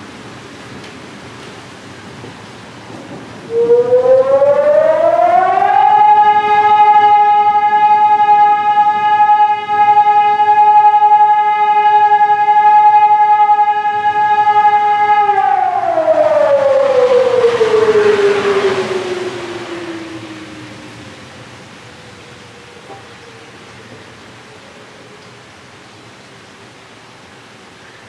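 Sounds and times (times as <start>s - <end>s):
warning siren wailing: 3.4s - 25.1s.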